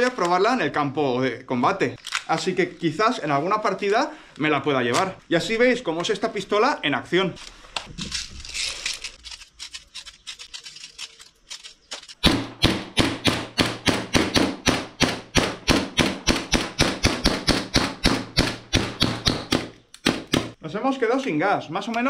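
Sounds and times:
airsoft pistol shots: 12.2 - 20.6.

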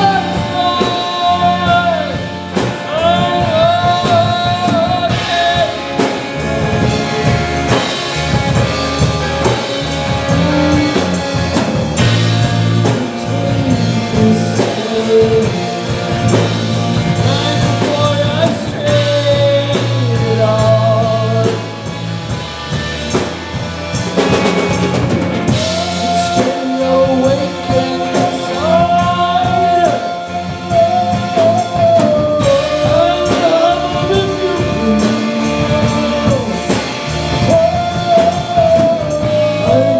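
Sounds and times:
drum kit: 0.0 - 39.9
electric guitars: 0.0 - 39.9
woman singing: 25.5 - 39.9.

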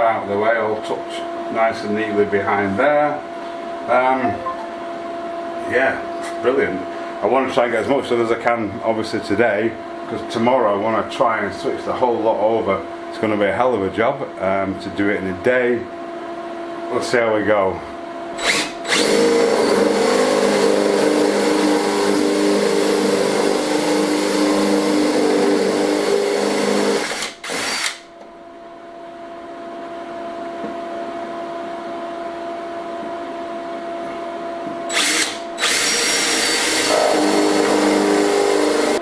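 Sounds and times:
cordless drill boring through board: 18.4 - 28.0, 34.9 - 39.0.

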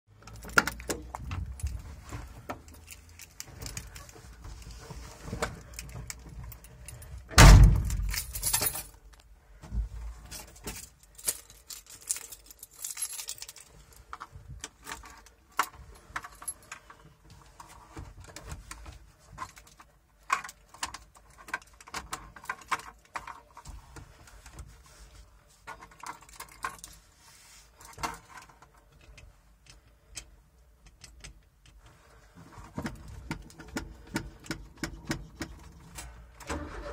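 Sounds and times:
keys jangling: 5.7 - 9.2, 10.3 - 14.1.

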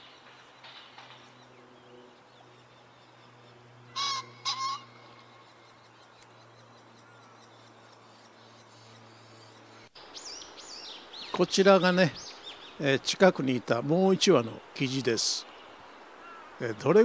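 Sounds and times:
faint bird calls: 0.0 - 12.8, 15.4 - 16.8
pheasant crowing: 3.9 - 5.6.

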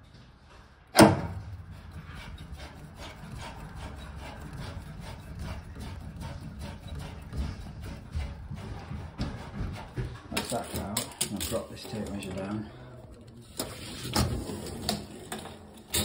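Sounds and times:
sharp knock: 1.0 - 1.5
pipe cutter rasping: 1.3 - 12.4.

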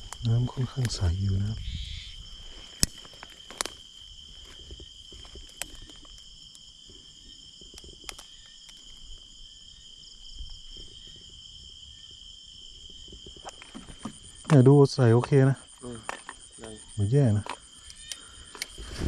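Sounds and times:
night insects chirring: 0.0 - 19.0
sharp clicks: 17.4 - 18.8.

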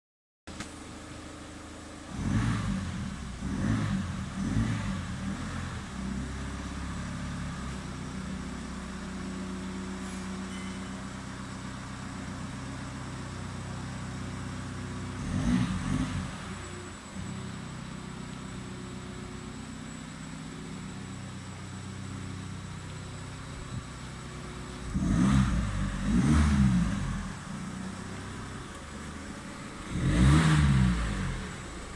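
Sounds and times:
diesel engine revving and idling: 0.6 - 31.9.

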